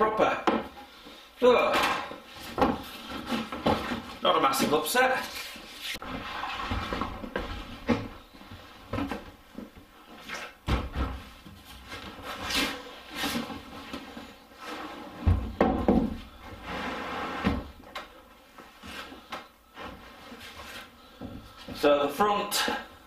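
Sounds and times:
wooden panels knocking and thumping: 0.4 - 0.8, 1.6 - 4.8, 10.6 - 11.4, 15.2 - 16.3
wood panel scraping: 5.3 - 8.7, 16.6 - 17.7.

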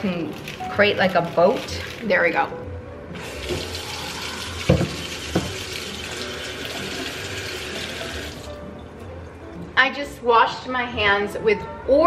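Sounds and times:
faucet running into steel sink: 3.2 - 8.6
hands washing: 3.2 - 8.6.

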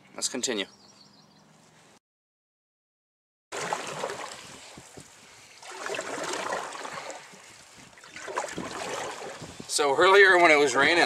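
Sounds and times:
paddle splashing through water: 3.5 - 9.6.

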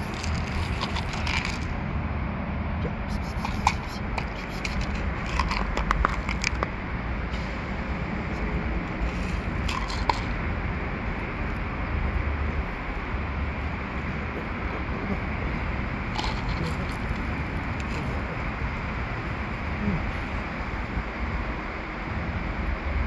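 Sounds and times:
kibble rattling onto concrete: 0.0 - 1.8, 3.2 - 6.8, 9.0 - 10.4, 16.0 - 18.2
outdoor background noise: 0.0 - 23.0.

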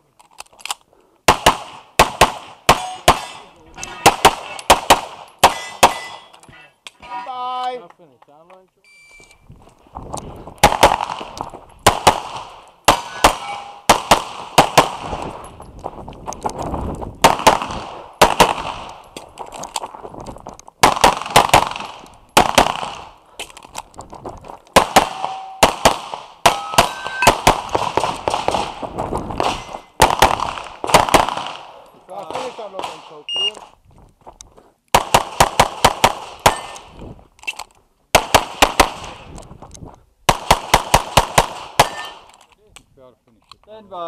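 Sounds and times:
pistol shots: 1.3 - 6.3, 10.6 - 15.2, 17.2 - 19.0, 20.8 - 23.1, 24.8 - 28.8, 29.4 - 33.2, 34.9 - 36.9, 38.2 - 39.2, 40.3 - 42.3
steel targets ringing: 5.5 - 6.4, 13.0 - 13.9, 25.1 - 25.6, 26.5 - 27.4.

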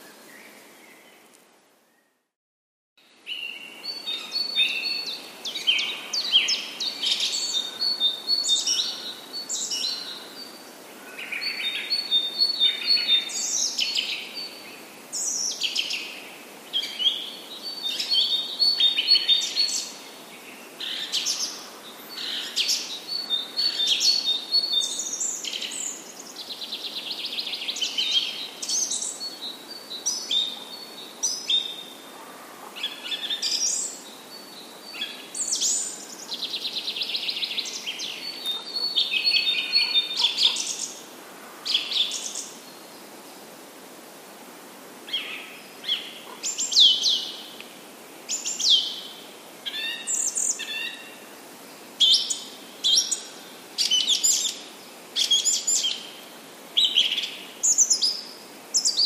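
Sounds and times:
songbirds chirping and trilling: 3.0 - 59.0.

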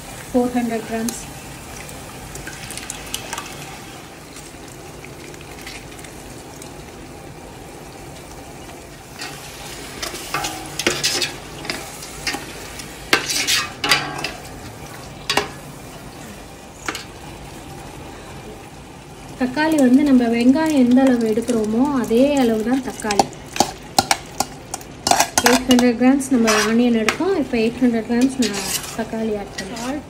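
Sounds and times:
spices sizzling in a pot: 0.0 - 30.0
steel ladle scraping a pot: 9.2 - 12.5, 13.1 - 14.5, 25.0 - 26.9, 28.2 - 30.0.

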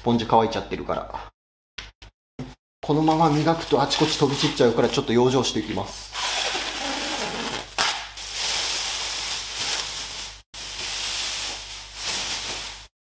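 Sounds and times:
plastic film tearing and crinkling: 6.2 - 12.9.

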